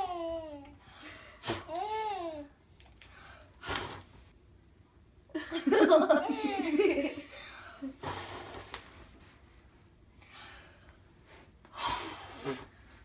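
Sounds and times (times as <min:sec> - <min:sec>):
baby giggling: 0:06.1 - 0:07.0
puffs of breath blowing: 0:07.4 - 0:08.8, 0:11.7 - 0:12.9.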